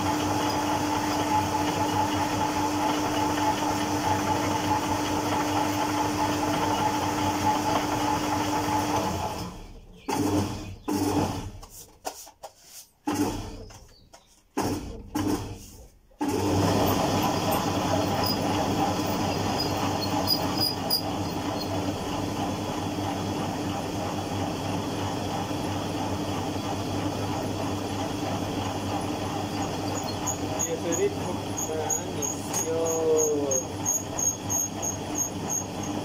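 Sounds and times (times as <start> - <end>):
noodle machine motor humming: 16.2 - 36.0.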